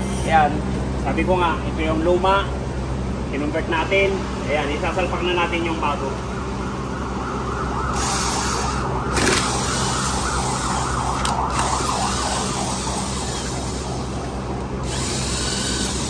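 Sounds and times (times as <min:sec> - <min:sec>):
wavering siren-like tone: 0:06.0 - 0:16.0
cordless impact tool bursts: 0:08.0 - 0:16.0.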